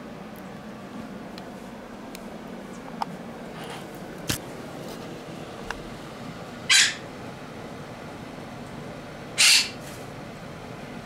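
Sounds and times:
parrot squawking: 0:06.7 - 0:07.0, 0:09.4 - 0:09.8.

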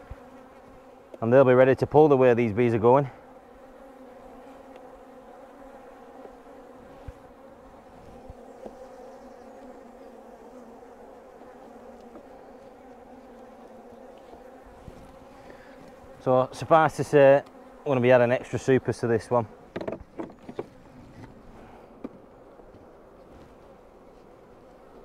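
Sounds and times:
honey bees humming: 0:00.0 - 0:25.0
wooden frames knocking: 0:19.7 - 0:20.7.

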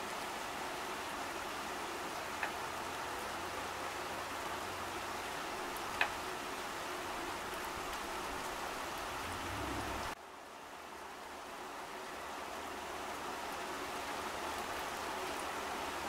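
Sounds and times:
rain falling on puddle and leaves: 0:00.0 - 0:16.0.

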